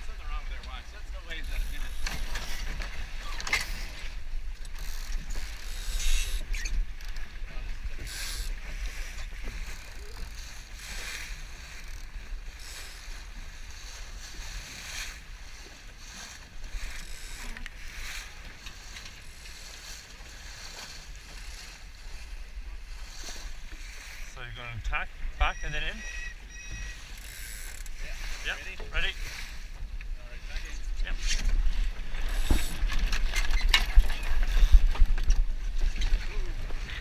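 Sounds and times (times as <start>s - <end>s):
water splashing against hull: 0.0s - 25.3s, 25.9s - 37.0s
wind rumble on microphone: 27.9s - 37.0s.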